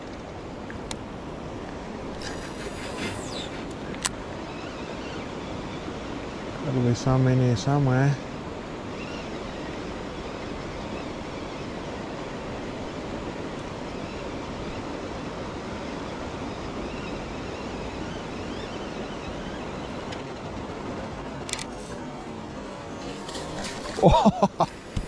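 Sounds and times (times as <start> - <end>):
sharp click: 21.4 - 21.7.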